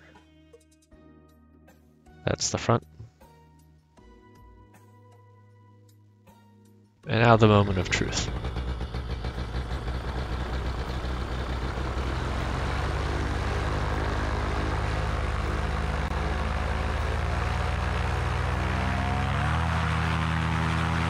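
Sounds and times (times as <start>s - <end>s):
paramotor engine idling: 7.2s - 21.0s.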